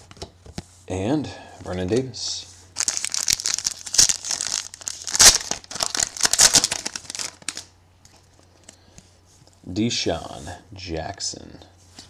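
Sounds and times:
foil wrapper tearing and crinkling: 2.8s - 7.7s.

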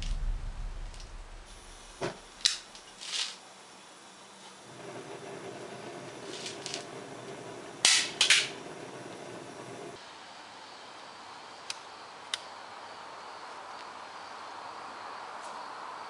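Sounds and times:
loud sharp burst: 0.0s - 2.5s
gas hissing: 0.0s - 2.9s, 4.5s - 10.0s
flame burning with a low rush: 0.0s - 3.1s, 4.1s - 10.0s.

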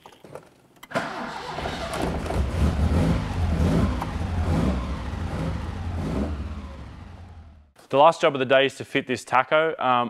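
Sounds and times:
car engine revving unevenly: 1.3s - 7.7s.

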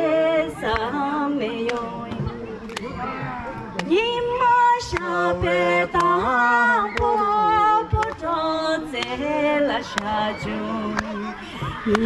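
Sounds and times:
singing with music: 0.0s - 12.0s.

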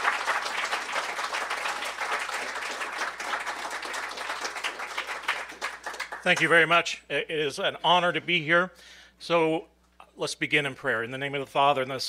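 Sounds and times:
audience applauding: 0.0s - 6.5s.

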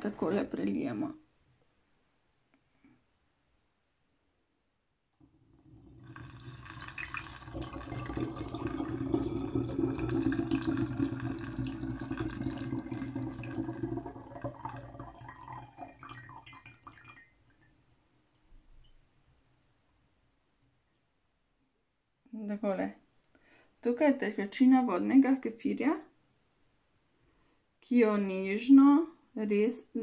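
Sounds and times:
liquid pouring into bottle: 5.3s - 17.7s.

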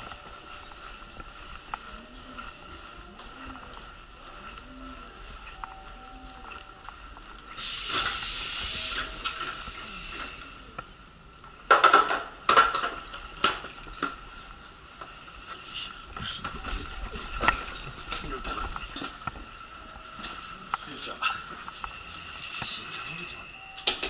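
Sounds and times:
faint high whine: 0.0s - 11.6s, 12.7s - 24.0s
hissing air burst: 7.6s - 10.8s.

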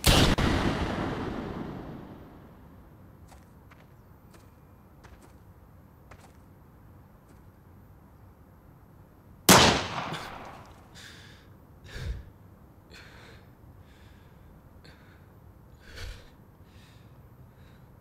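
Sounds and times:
gunshot with echo: 0.0s - 2.2s, 9.5s - 10.7s.

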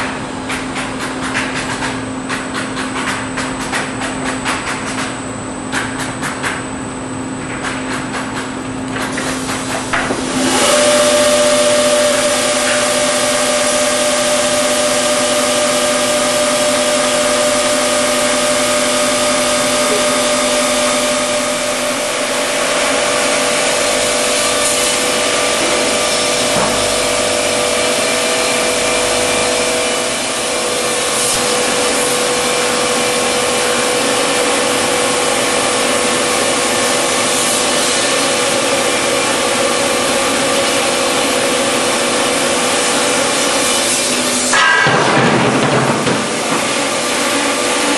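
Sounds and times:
saw machine cutting boards: 9.0s - 47.9s
saw whine: 10.2s - 47.9s.

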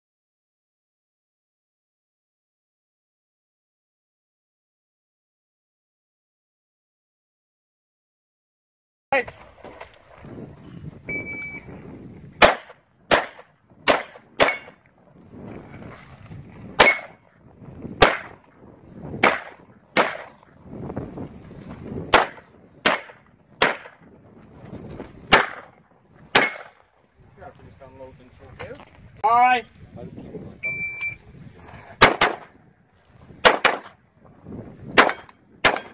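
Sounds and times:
shot timer beep: 11.1s - 11.7s, 30.6s - 31.2s
handgun shots: 12.4s - 14.8s, 16.8s - 17.2s, 18.0s - 18.4s, 19.2s - 20.3s, 22.1s - 24.0s, 25.3s - 25.7s, 26.4s - 26.8s, 32.0s - 32.5s, 33.4s - 33.9s, 35.0s - 35.9s.

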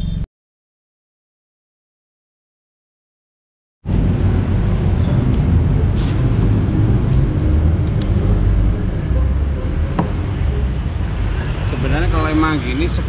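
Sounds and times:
steady low rumble: 3.9s - 13.0s.

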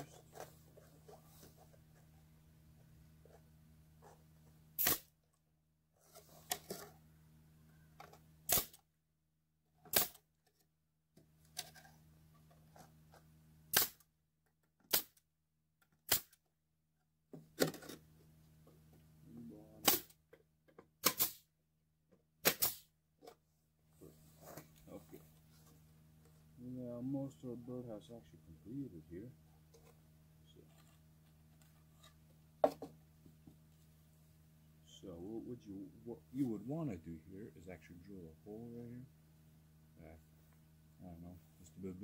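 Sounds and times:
nail gun firing: 4.8s - 5.1s, 8.5s - 8.8s, 9.9s - 10.2s, 13.7s - 14.0s, 14.9s - 15.2s, 16.1s - 16.4s, 19.8s - 20.2s, 21.0s - 21.4s, 22.4s - 22.9s.

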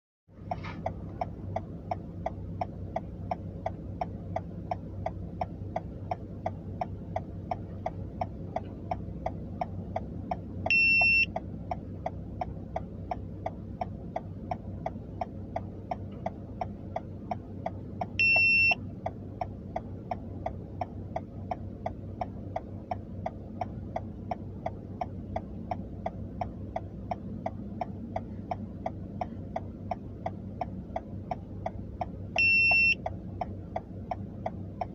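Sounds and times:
idling car hum: 0.3s - 34.9s
turn signal ticking: 0.3s - 34.9s
high electronic beep: 10.7s - 11.3s, 18.2s - 18.8s.

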